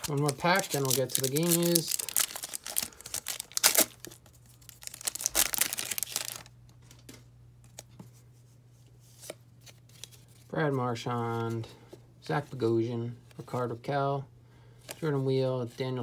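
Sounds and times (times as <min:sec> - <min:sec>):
foil wrapper tearing and crinkling: 0:00.0 - 0:06.5.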